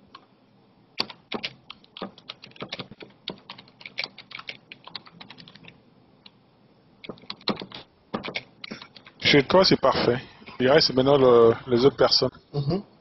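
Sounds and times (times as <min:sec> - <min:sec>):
typing on computer keyboard: 0:01.0 - 0:05.8, 0:07.0 - 0:09.2.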